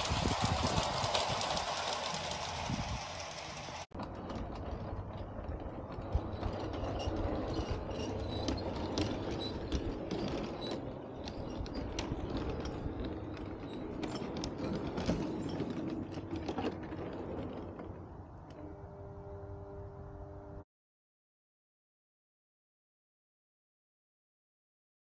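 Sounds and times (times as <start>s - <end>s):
model train running noise: 0.0s - 16.4s
wheels clicking over rail joints: 0.0s - 19.3s.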